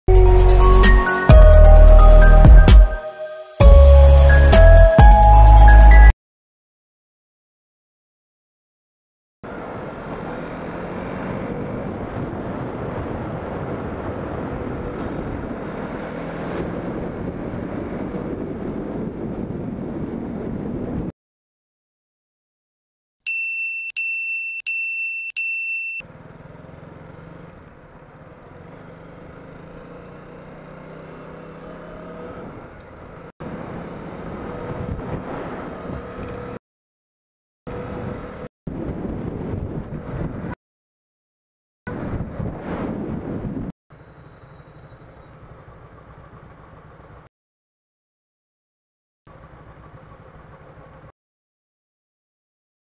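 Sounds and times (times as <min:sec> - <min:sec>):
motorcycle engine: 0:09.5 - 0:19.4, 0:26.0 - 0:36.6, 0:43.9 - 0:47.3, 0:49.3 - 0:51.1
wind noise: 0:11.6 - 0:15.7, 0:16.4 - 0:21.1, 0:34.5 - 0:36.4, 0:37.9 - 0:40.6, 0:41.9 - 0:43.7
quick bell dings: 0:23.3 - 0:26.1.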